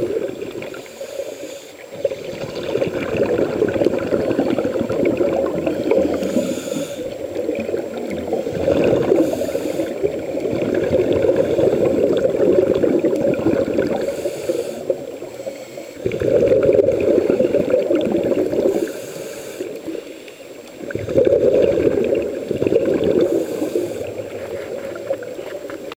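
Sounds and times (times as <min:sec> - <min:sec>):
gurgling exhaled bubbles: 0:00.0 - 0:01.0, 0:01.8 - 0:20.0, 0:20.7 - 0:26.0
regulator inhale hiss: 0:00.6 - 0:02.1, 0:05.6 - 0:10.4, 0:11.3 - 0:12.2, 0:13.8 - 0:16.2, 0:18.4 - 0:20.9, 0:23.2 - 0:25.5.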